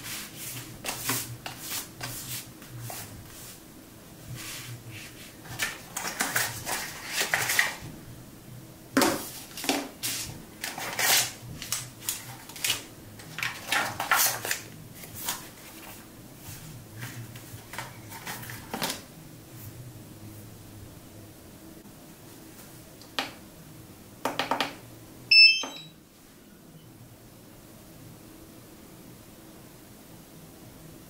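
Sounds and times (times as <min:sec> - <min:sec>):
paper and plastic bags rustling: 0:05.4 - 0:07.8.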